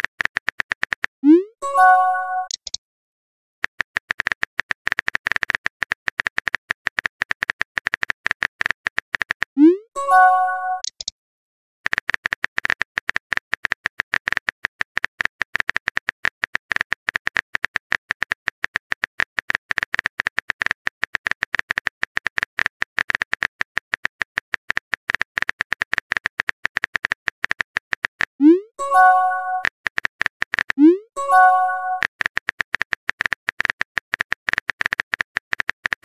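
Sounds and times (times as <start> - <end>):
multi-tone chime: 1.6 - 2.5, 10.0 - 10.8, 28.8 - 29.6, 31.2 - 32.0.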